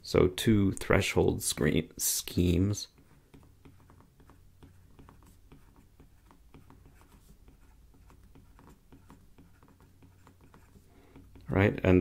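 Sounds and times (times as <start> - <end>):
stylus tapping on tablet screen: 3.0 - 11.5.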